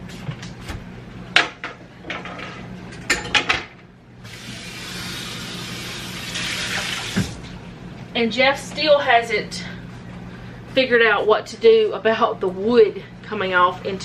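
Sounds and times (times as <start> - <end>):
faucet running: 4.2 - 7.5.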